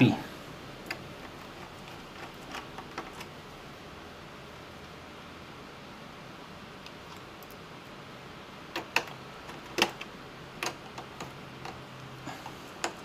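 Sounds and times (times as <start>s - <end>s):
faint steady hum: 0.0s - 13.0s
screwdriver clicks and taps: 8.8s - 11.8s.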